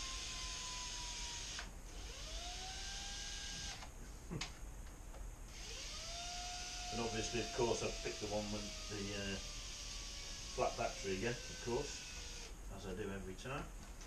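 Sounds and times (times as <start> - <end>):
cordless drill motor whine: 0.0 - 3.9, 5.5 - 12.6.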